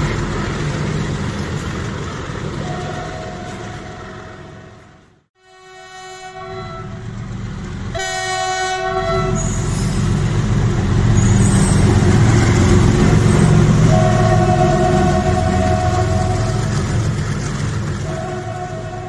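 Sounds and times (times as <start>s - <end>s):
passing train rumble and clatter: 0.0s - 19.0s
locomotive horn blasts: 2.6s - 4.6s, 5.4s - 7.0s, 8.0s - 9.7s, 13.7s - 16.8s, 18.0s - 19.0s.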